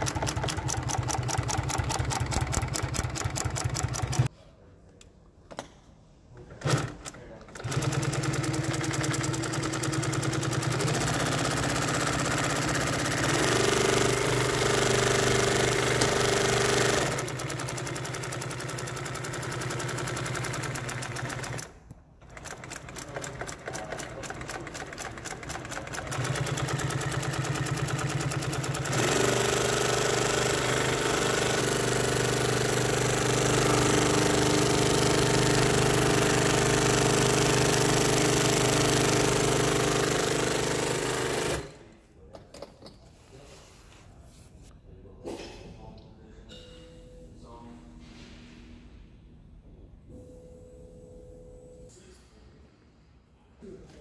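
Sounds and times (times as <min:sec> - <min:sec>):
sewing machine needle clatter: 0:00.0 - 0:04.3, 0:06.6 - 0:41.8.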